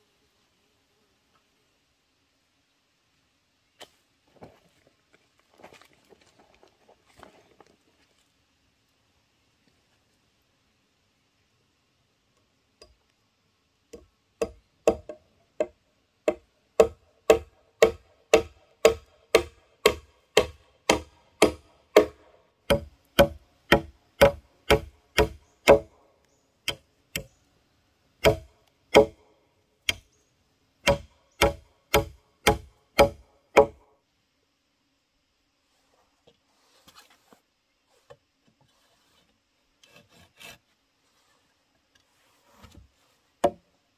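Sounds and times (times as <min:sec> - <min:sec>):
tool knocking on bamboo: 0:13.9 - 0:25.9, 0:28.2 - 0:29.2, 0:30.8 - 0:33.8.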